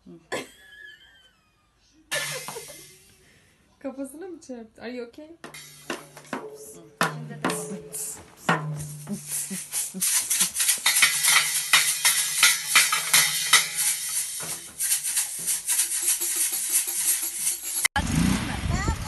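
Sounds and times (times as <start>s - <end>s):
toy drums hit with sticks: 2.1s - 2.8s, 5.4s - 17.9s
small cymbal crashing: 5.5s - 17.8s.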